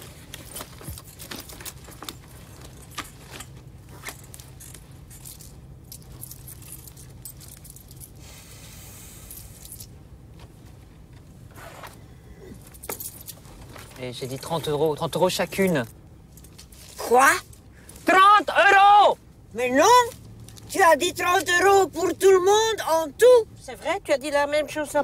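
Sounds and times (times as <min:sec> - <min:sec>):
car cabin hum: 0:00.0 - 0:25.0
coins jingling and clinking: 0:00.2 - 0:08.2, 0:09.2 - 0:10.0, 0:12.6 - 0:14.4.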